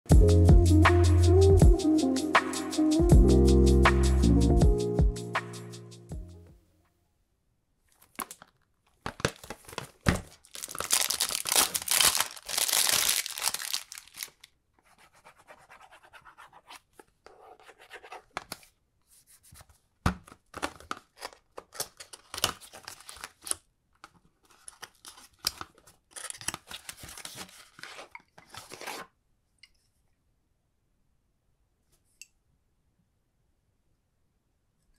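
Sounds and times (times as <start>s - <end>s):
cardboard packaging tearing: 8.0s - 14.5s, 20.8s - 23.6s, 24.5s - 29.1s.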